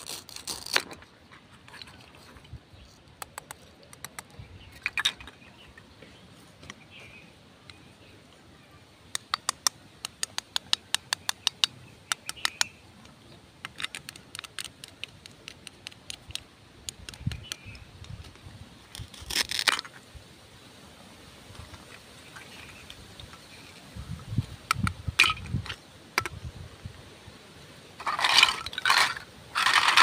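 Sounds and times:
plastic pieces rasping apart: 0:00.0 - 0:01.1, 0:13.6 - 0:19.9
plastic toy clicks: 0:09.1 - 0:12.7, 0:13.6 - 0:18.4.

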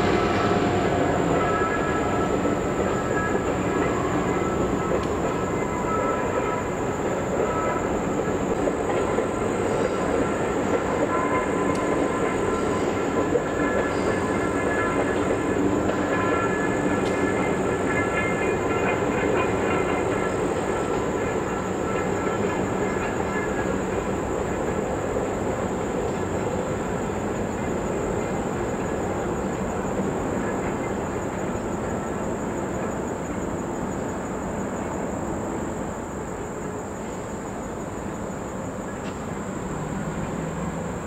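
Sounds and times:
faint steady high tones: 0:00.0 - 0:25.0
passenger train rumbling past: 0:00.0 - 0:41.0.

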